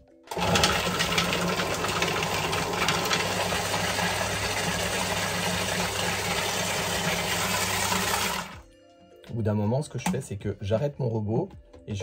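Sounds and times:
food processor running: 0.3 - 8.6.

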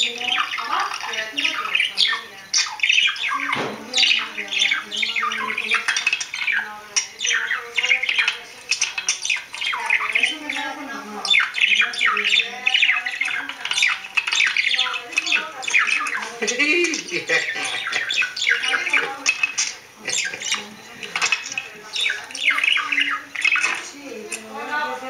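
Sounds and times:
budgerigar warbling and chattering: 0.0 - 25.0.

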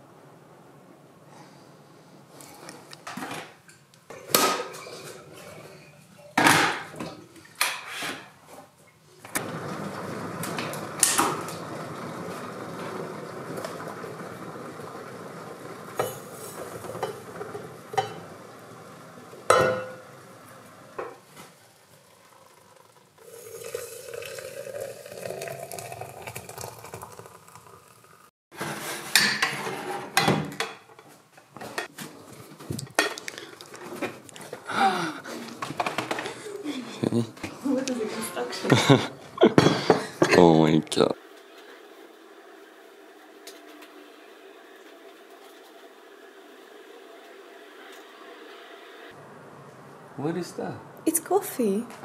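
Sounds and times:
water pouring into glass carafe: 21.8 - 28.3.

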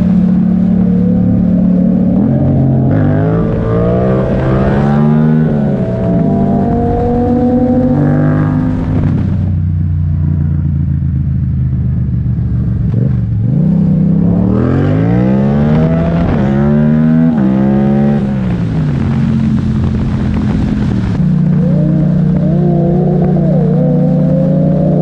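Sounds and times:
motorcycle engine revving: 0.0 - 25.0.

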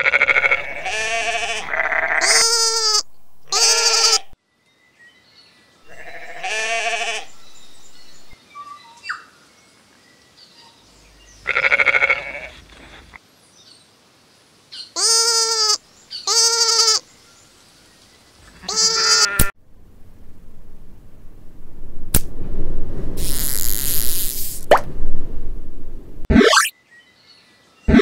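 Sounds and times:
sheep bleating: 0.0 - 4.4, 5.9 - 7.4, 11.5 - 12.6, 15.0 - 17.0, 18.6 - 19.5.

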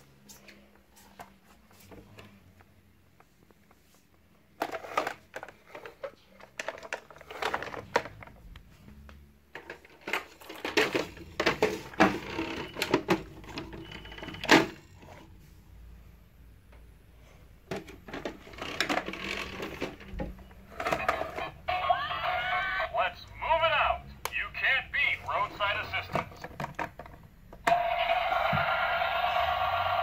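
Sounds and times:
plastic toy truck clattering: 4.6 - 8.4, 9.5 - 14.8, 17.7 - 21.6.

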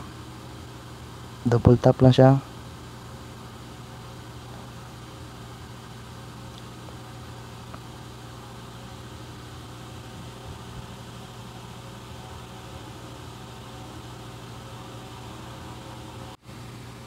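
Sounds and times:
constant low hum: 0.0 - 17.0.

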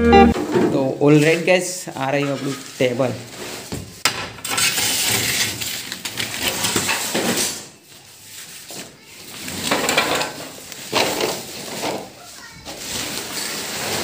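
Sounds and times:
sharp sound: 0.0 - 0.4
rustling and handling noise: 0.3 - 14.0.

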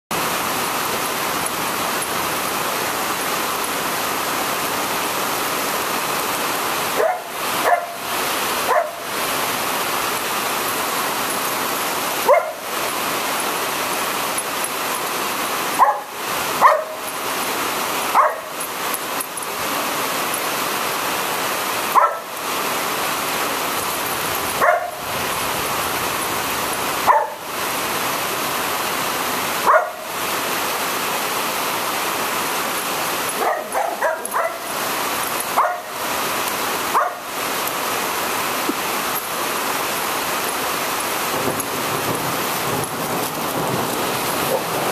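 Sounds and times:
heavy rain hissing: 0.1 - 44.9
dog barking: 7.0 - 9.1, 12.2 - 12.7, 15.8 - 17.1, 18.1 - 18.6, 21.9 - 22.3, 24.6 - 25.0, 27.0 - 27.5, 29.6 - 30.1, 33.4 - 34.7, 35.6 - 36.0, 36.9 - 37.3, 44.4 - 44.8.

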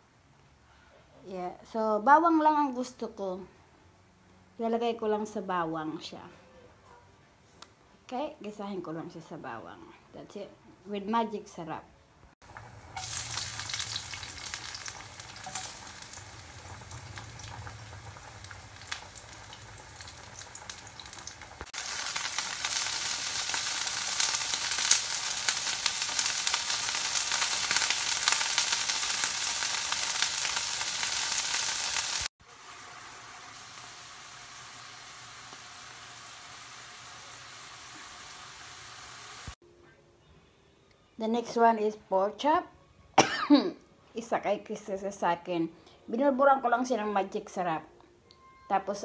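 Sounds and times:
garlic sizzling in oil: 12.4 - 39.6
vegetables stir-frying with crackles: 12.4 - 39.6.

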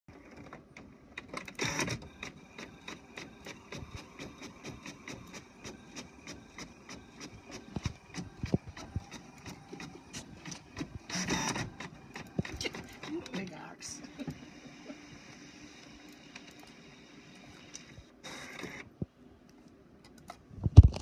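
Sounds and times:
printer whirring: 0.1 - 19.0.

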